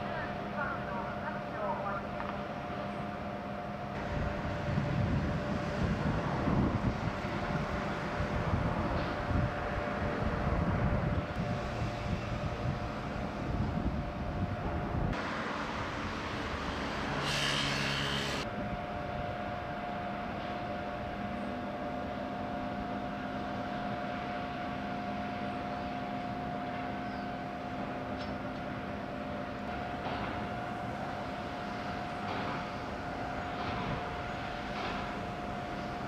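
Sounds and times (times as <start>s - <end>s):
shipyard machinery drone: 0.0s - 36.0s
brief bright hiss: 17.2s - 18.4s.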